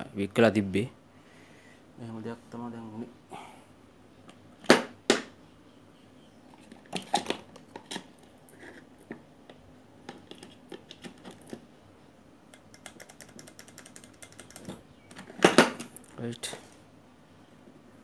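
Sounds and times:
small parts clicking and tapping: 0:12.5 - 0:16.2.

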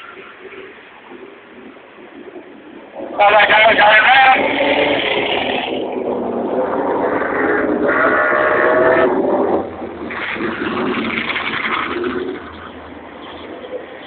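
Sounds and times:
racing motorcycles revving past: 0:04.3 - 0:12.8.

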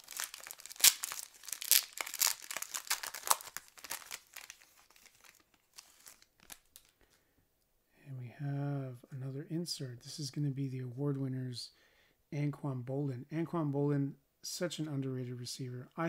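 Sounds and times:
foil wrapper crinkling: 0:00.0 - 0:07.1.

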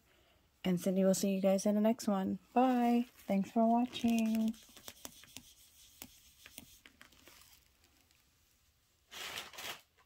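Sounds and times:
handling rustle: 0:03.0 - 0:05.0, 0:06.8 - 0:08.4.

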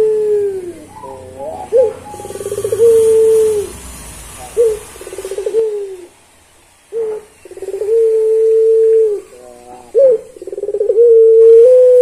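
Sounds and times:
dove cooing: 0:00.0 - 0:03.8, 0:04.4 - 0:06.1, 0:07.0 - 0:12.0.

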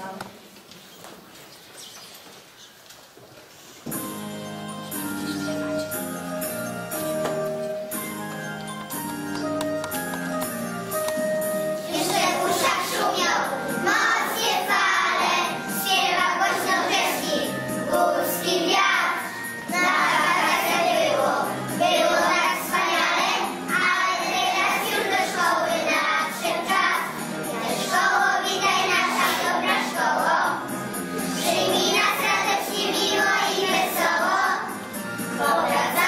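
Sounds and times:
accompanying music: 0:03.9 - 0:36.0
children singing: 0:11.8 - 0:30.6, 0:31.2 - 0:36.0.

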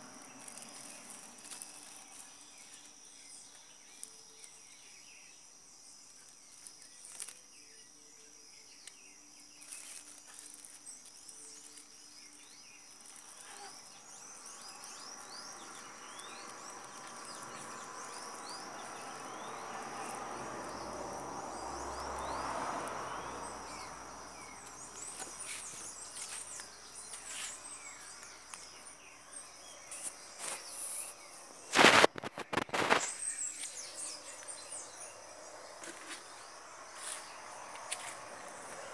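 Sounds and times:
birds chirping: 0:00.0 - 0:38.9
broad noise: 0:30.4 - 0:34.4.

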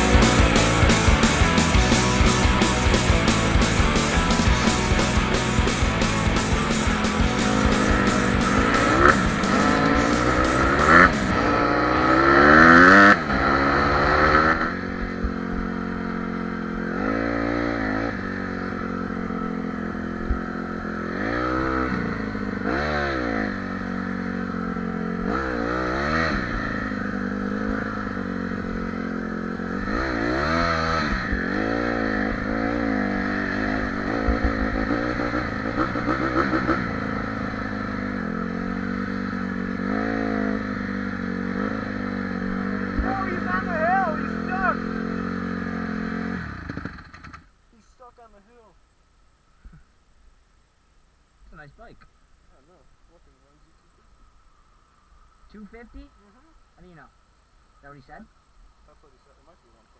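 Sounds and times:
dirt bike engine revving: 0:00.0 - 0:47.6.

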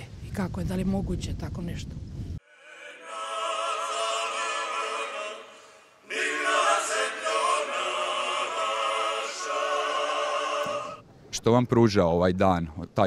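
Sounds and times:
choir singing: 0:02.4 - 0:11.0.

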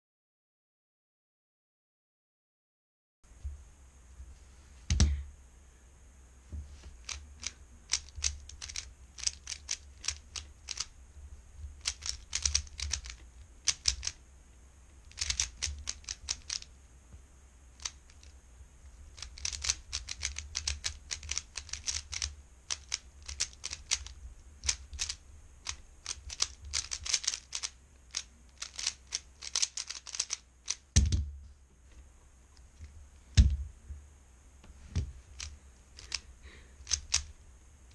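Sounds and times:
heavy thump: 0:04.9 - 0:05.3, 0:31.0 - 0:31.6, 0:33.3 - 0:34.0
puzzle cube layers clicking: 0:07.0 - 0:10.9, 0:11.8 - 0:14.2, 0:15.1 - 0:16.7, 0:17.8 - 0:18.3, 0:19.1 - 0:31.2, 0:35.3 - 0:37.3.

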